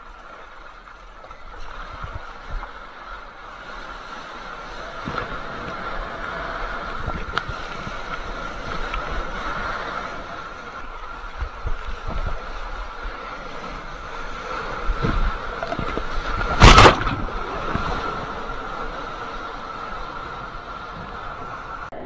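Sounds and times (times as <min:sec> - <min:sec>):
surf sloshing against camera: 0:01.4 - 0:21.9
loud water splash: 0:14.9 - 0:18.4.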